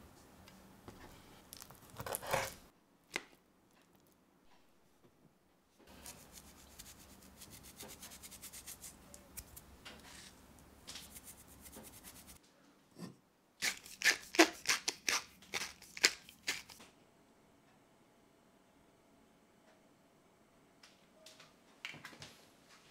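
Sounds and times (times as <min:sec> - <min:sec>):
salt grains crackling: 0:13.6 - 0:16.8.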